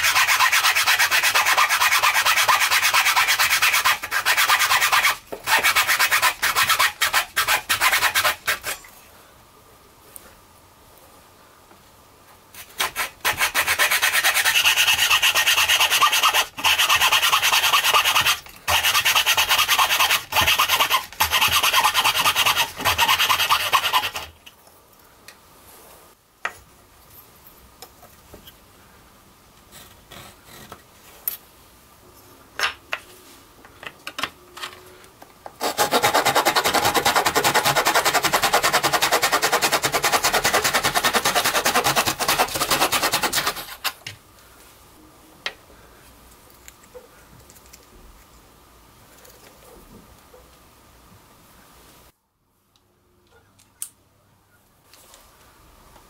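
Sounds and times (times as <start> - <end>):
hand saw cutting wood: 0.0 - 8.8, 12.6 - 24.4, 35.6 - 44.0
coping saw cutting wood: 12.8 - 24.3, 35.6 - 43.9.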